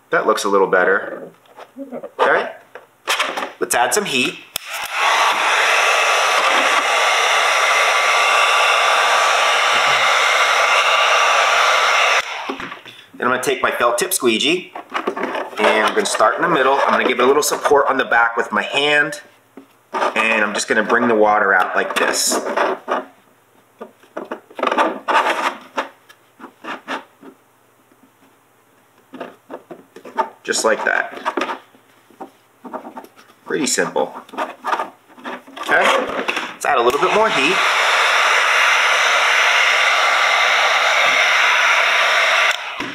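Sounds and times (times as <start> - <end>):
fan whine: 3.8 - 14.5, 35.7 - 42.9
heat gun blowing air: 4.5 - 12.8, 35.8 - 42.9
squeegee rubbing over wet vinyl: 32.3 - 36.1.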